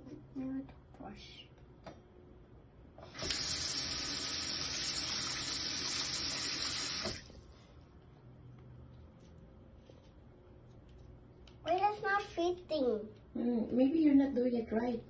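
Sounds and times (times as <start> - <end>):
faucet water running into sink: 3.1 - 7.3.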